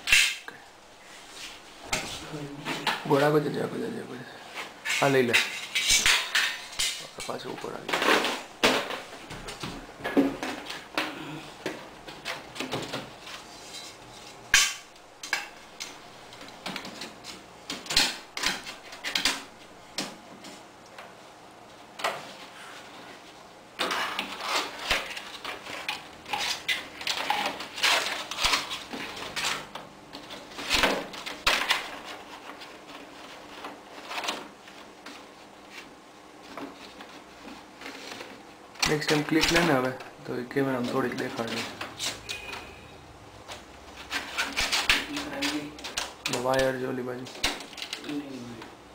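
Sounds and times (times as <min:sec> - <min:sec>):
plastic ceiling tiles clicking: 0:14.5 - 0:20.2, 0:23.8 - 0:35.3, 0:36.4 - 0:42.4, 0:43.4 - 0:48.2.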